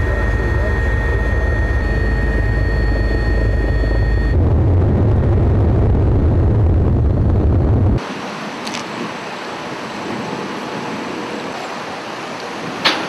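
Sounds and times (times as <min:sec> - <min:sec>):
helicopter engine and rotor: 0:00.0 - 0:04.4.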